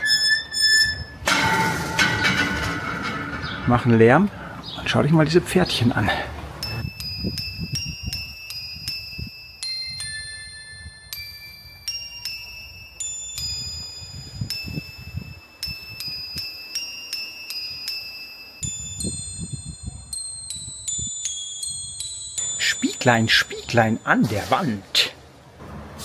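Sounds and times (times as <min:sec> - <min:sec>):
tinkling chime melody: 0:06.6 - 0:24.3.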